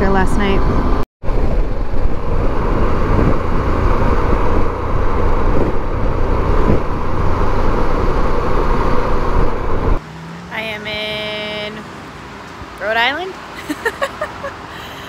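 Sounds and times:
wind rushing across microphone: 0.0 - 10.0
motorcycle road noise: 0.0 - 15.0.

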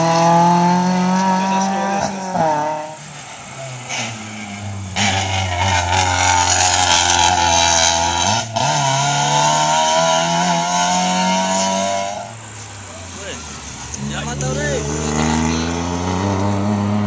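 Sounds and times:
race car engine at high revs: 0.0 - 17.0.

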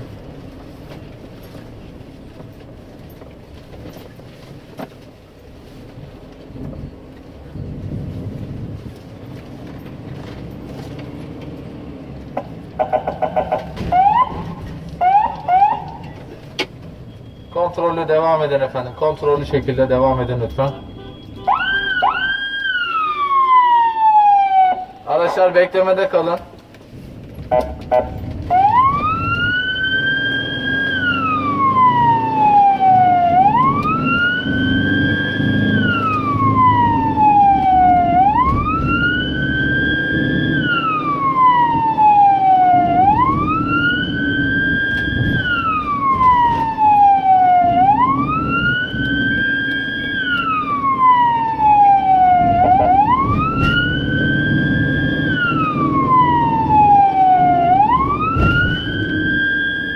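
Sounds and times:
van engine and road noise: 0.0 - 59.9
ambulance siren wailing: 12.6 - 25.6, 27.5 - 59.9.

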